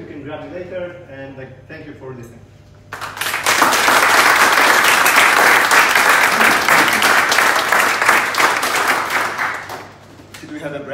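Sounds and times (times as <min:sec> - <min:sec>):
audience applauding: 0:02.9 - 0:10.0.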